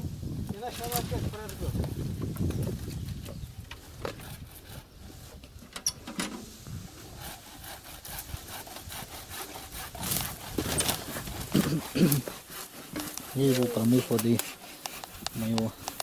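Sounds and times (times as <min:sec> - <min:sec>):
brush rustling: 0:00.1 - 0:16.0.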